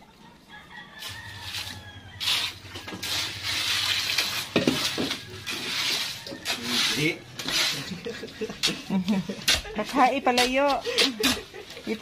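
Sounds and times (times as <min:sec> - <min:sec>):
water splashing into cement mix: 0:01.5 - 0:08.0.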